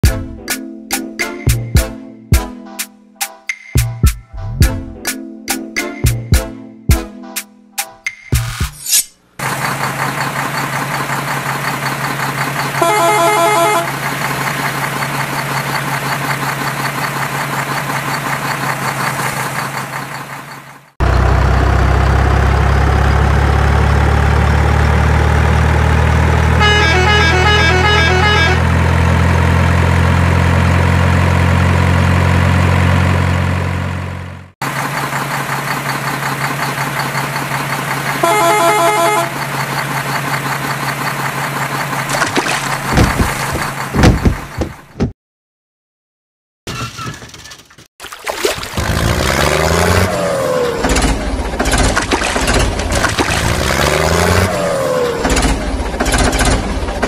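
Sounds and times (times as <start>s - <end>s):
truck engine running: 9.2s - 45.1s, 48.8s - 57.0s
truck horn: 12.6s - 14.4s, 26.0s - 29.5s, 38.1s - 39.6s
heavier engine rising in pitch: 21.0s - 44.0s, 48.8s - 51.6s, 53.3s - 55.9s.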